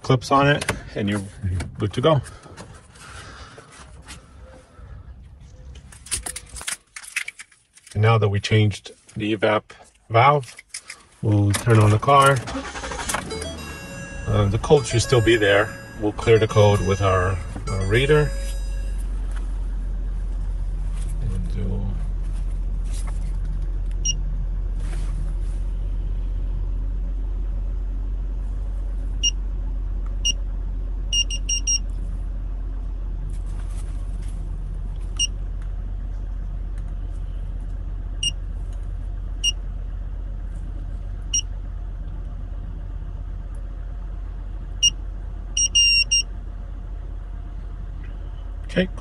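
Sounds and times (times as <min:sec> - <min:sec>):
car engine rumbling: 0:00.0 - 0:49.0
scan tool beeping: 0:13.2 - 0:19.1.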